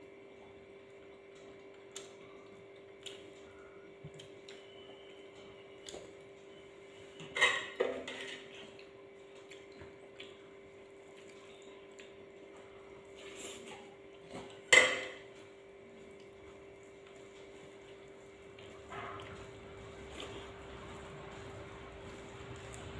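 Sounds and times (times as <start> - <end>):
dishes clattering: 7.2 - 8.7, 14.4 - 15.3.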